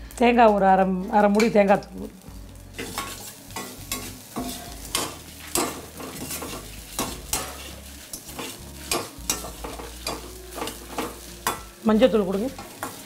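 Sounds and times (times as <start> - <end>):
metal ladle scraping a pan: 2.8 - 11.8.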